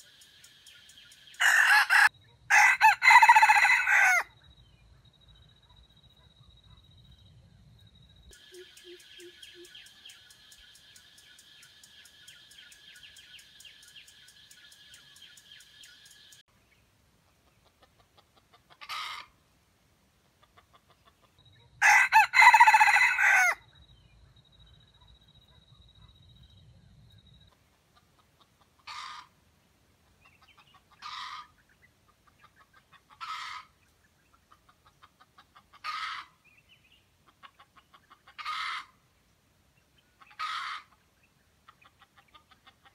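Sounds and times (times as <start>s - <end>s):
rooster crowing: 1.4s - 4.3s, 21.8s - 23.6s.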